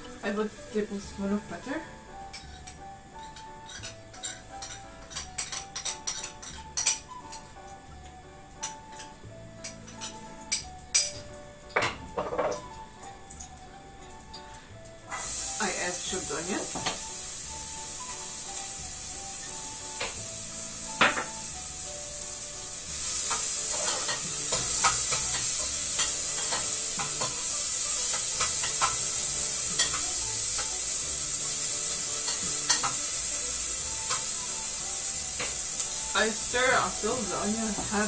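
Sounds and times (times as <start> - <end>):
onion sizzling in a pan: 0.0 - 38.0.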